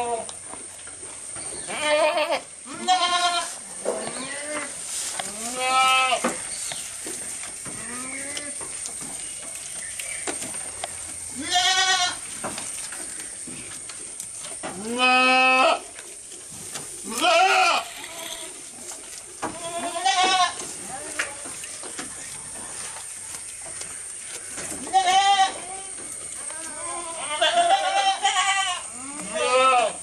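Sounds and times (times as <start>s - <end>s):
goats bleating: 0.0s - 0.3s, 1.6s - 6.4s, 11.3s - 12.3s, 14.7s - 16.0s, 17.0s - 18.7s, 19.4s - 21.6s, 24.8s - 30.0s.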